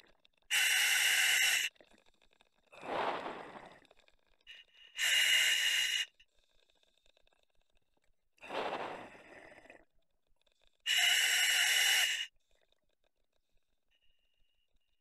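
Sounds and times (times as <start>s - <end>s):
regulator inhalation hiss: 0.5s - 1.7s, 4.5s - 6.1s, 10.9s - 12.3s
exhalation with bubbles: 1.8s - 4.3s, 8.4s - 10.0s.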